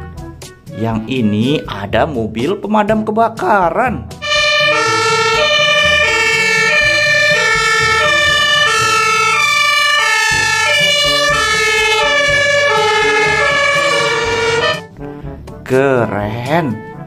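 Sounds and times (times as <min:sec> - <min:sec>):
engine noise: 0:04.2 - 0:14.8
two-tone fire engine sirens: 0:04.2 - 0:14.9.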